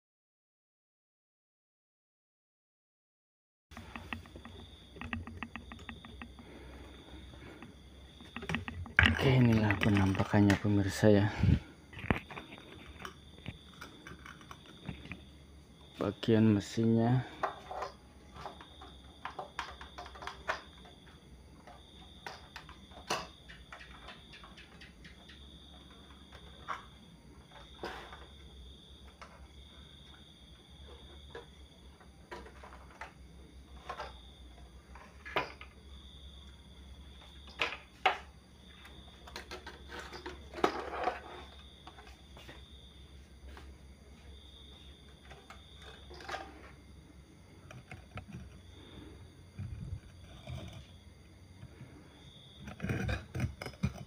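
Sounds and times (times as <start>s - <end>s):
crickets trilling: 3.7s - 54.0s
circuit board knocking and rattling: 3.8s - 6.4s, 7.6s - 11.0s, 11.9s - 15.3s, 52.6s - 54.0s
wires and circuit board clicking: 3.8s - 6.4s.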